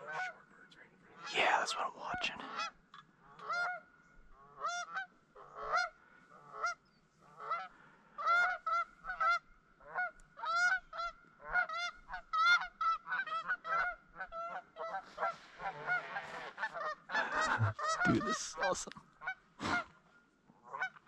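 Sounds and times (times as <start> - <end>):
geese honking: 2.5 - 19.9, 20.6 - 21.0.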